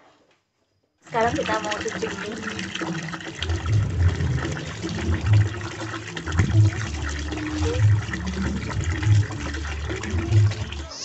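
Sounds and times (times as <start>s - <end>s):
clothes washed by hand: 1.0s - 11.0s
tap water pouring into basin: 1.1s - 11.0s
low throb: 3.4s - 10.9s.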